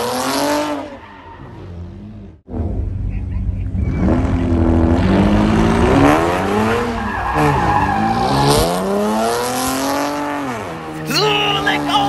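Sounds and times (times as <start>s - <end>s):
car engine revving: 0.0s - 12.0s
tyres squealing on asphalt: 0.8s - 1.8s, 6.5s - 8.6s.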